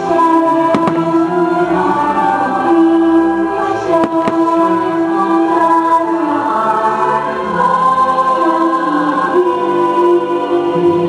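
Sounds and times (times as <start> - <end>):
choir singing held chords: 0.0 - 11.0.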